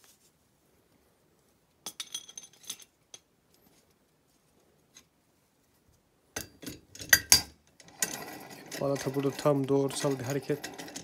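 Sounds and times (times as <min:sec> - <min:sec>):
metal clatter: 0:06.4 - 0:11.0.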